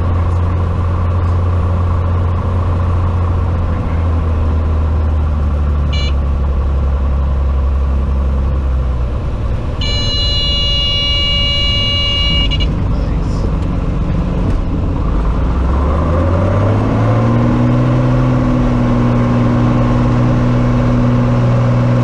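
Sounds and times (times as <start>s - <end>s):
cockpit warning horn: 5.9s - 6.2s, 9.8s - 12.8s.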